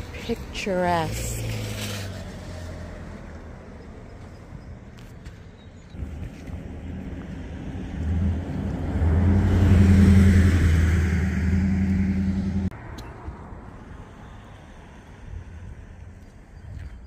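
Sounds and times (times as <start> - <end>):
vehicle engine running: 6.0 - 12.7.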